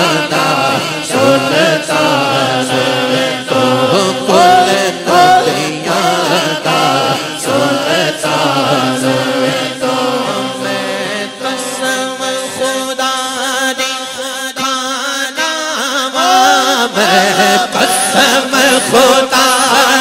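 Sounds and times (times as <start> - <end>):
crowd chanting refrain: 0.0 - 12.8
man chanting through loudspeaker: 0.0 - 20.0.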